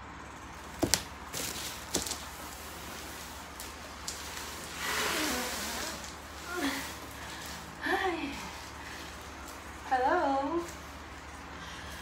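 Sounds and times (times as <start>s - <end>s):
plastic rustling: 0.6s - 12.0s
sharp knocks on package: 0.8s - 2.2s.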